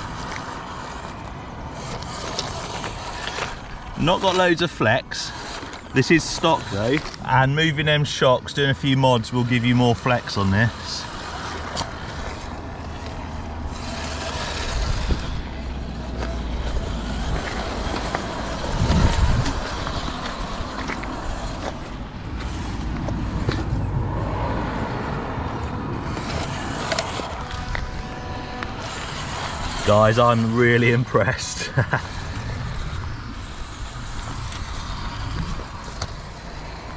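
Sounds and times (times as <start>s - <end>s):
electric motor and gearbox whirring: 0.0s - 36.9s
tyres crunching on gravel: 0.0s - 36.9s.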